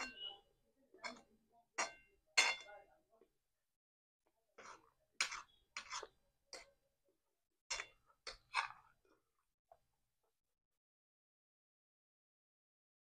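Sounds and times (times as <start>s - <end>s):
cutlery scraping on ceramic plate: 0.0s - 0.4s, 1.0s - 2.7s, 4.6s - 6.8s, 7.7s - 9.0s.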